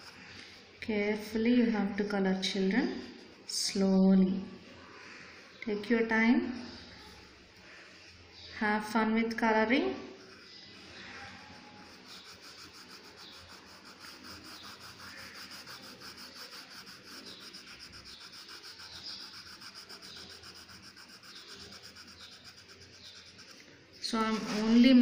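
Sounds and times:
pencil scratching on paper: 0:00.0 - 0:00.3, 0:10.1 - 0:25.0.

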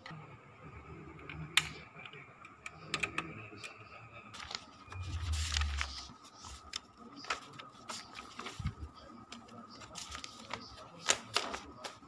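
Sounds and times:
printer mechanical whirr: 0:00.0 - 0:12.0
faint high whine: 0:03.7 - 0:07.0.

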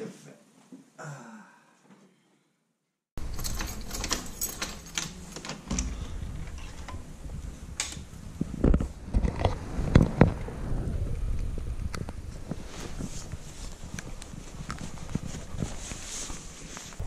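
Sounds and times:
door handling clicks and knocks: 0:03.2 - 0:07.1
footsteps in snow: 0:12.3 - 0:17.0.

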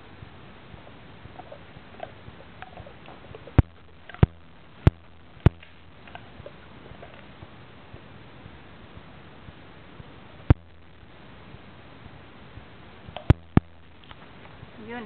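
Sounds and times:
dog gnawing a chew: 0:01.2 - 0:07.4.

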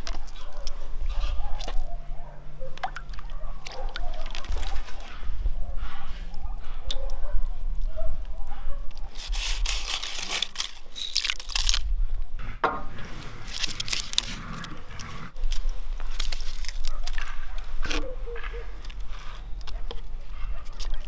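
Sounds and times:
dry leaves crackling and rustling: 0:09.1 - 0:11.9, 0:13.4 - 0:14.4, 0:15.9 - 0:17.4.

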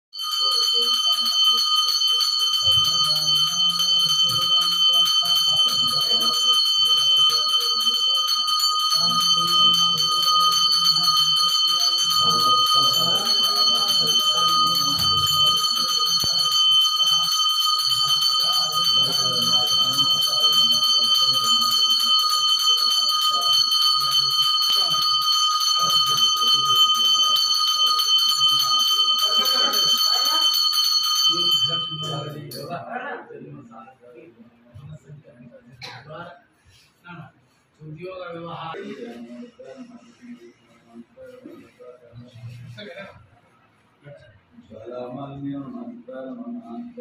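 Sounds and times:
hand bell ringing: 0:00.2 - 0:32.7.

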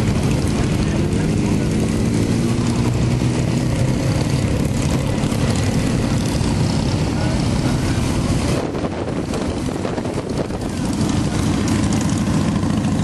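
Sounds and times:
motorcycle engines rumbling: 0:00.0 - 0:13.0.

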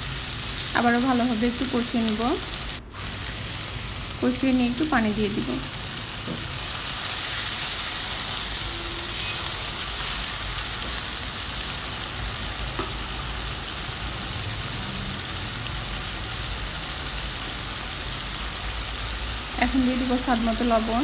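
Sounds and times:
paste sizzling in hot oil: 0:00.0 - 0:21.0.

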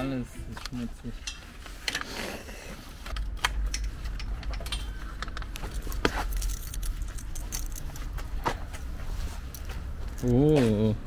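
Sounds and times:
keys jangling and clinking: 0:03.7 - 0:08.4, 0:09.3 - 0:10.9.

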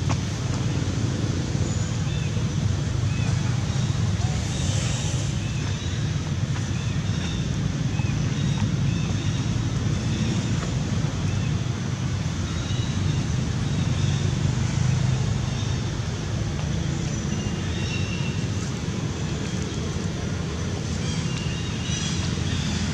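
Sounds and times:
hiss: 0:04.2 - 0:05.6.

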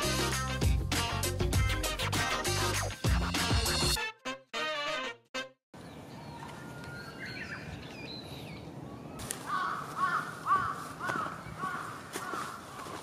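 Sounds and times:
faint outdoor background: 0:00.0 - 0:13.0
bird chirps: 0:05.8 - 0:09.2
crow cawing: 0:09.4 - 0:13.0.

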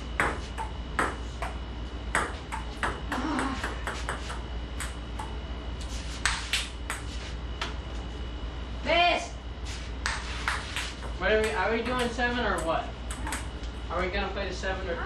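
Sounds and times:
ball bouncing on floor: 0:00.2 - 0:05.3, 0:10.0 - 0:13.5.

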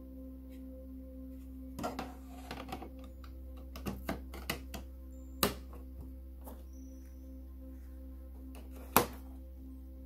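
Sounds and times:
steady low hum: 0:00.0 - 0:10.0
plastic cover clicking: 0:03.6 - 0:04.8.

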